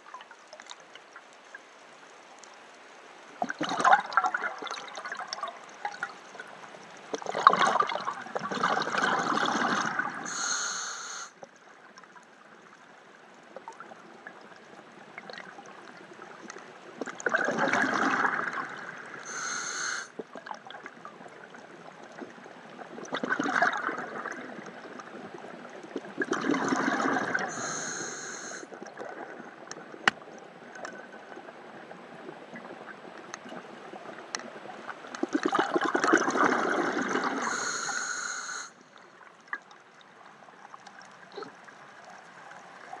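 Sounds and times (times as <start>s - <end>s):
regulator hiss: 10.3s - 11.4s, 19.3s - 20.1s, 27.5s - 28.7s, 37.4s - 38.8s
diver exhaling bubbles: 26.2s - 29.2s, 35.3s - 38.3s.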